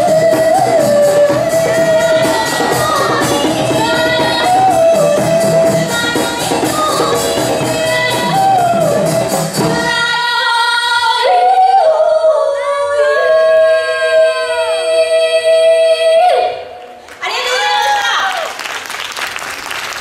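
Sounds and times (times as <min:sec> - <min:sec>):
djembe drums: 0:00.0 - 0:10.0
women singing in harmony: 0:00.0 - 0:16.8.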